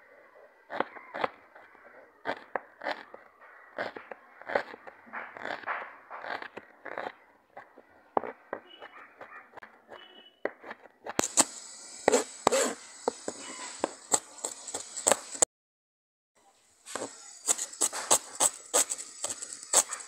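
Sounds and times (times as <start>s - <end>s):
knife chopping on cutting board: 8.2s - 15.3s, 16.9s - 20.0s.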